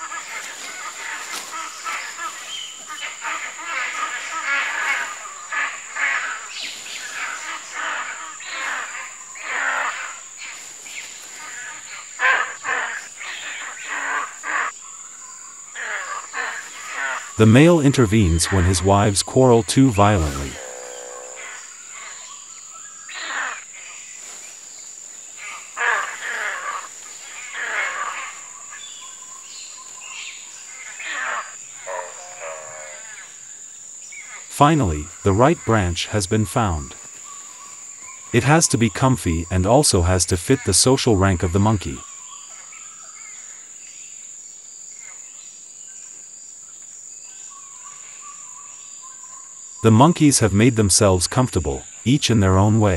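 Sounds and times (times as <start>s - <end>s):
monkeys calling: 0.0s - 10.3s, 15.8s - 21.6s, 31.0s - 33.0s
insects droning: 0.0s - 52.9s
pulsing insect trills: 0.0s - 52.9s.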